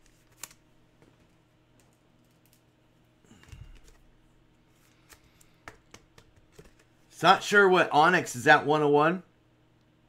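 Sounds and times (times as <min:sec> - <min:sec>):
trading cards clicking and tapping: 0:04.9 - 0:06.9.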